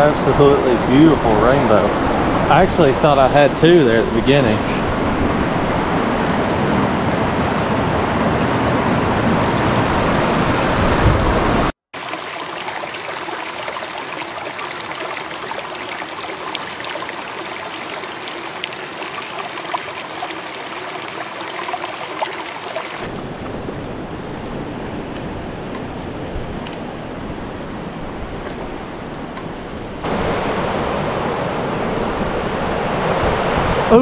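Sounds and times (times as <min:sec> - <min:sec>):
water rushing over rocks: 0:09.9 - 0:23.2.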